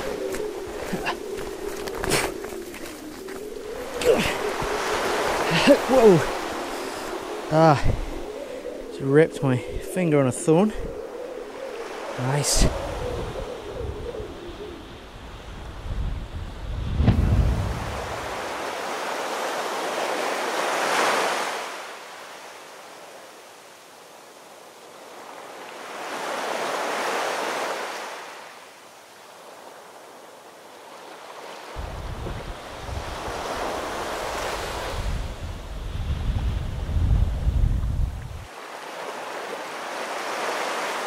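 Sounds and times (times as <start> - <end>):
surf washing against rocky shore: 0.0 - 10.7
wind buffeting microphone: 0.0 - 18.7, 31.8 - 38.5.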